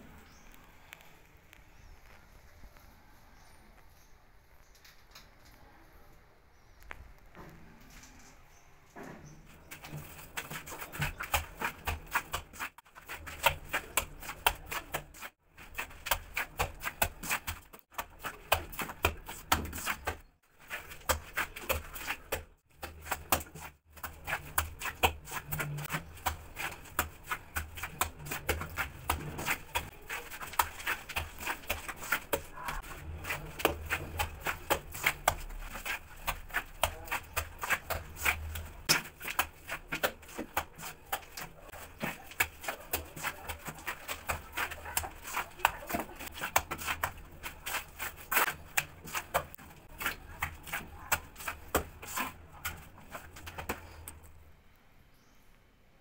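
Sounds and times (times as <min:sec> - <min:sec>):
hand tool chipping mortar: 0:09.6 - 0:54.3.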